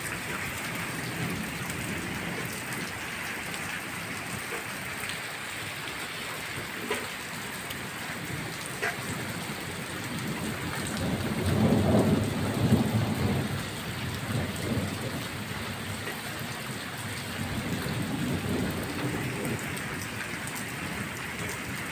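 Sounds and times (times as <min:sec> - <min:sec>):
low rumble of thunder: 0:00.0 - 0:05.0, 0:06.5 - 0:21.9
rain falling on brick paving: 0:00.0 - 0:21.9.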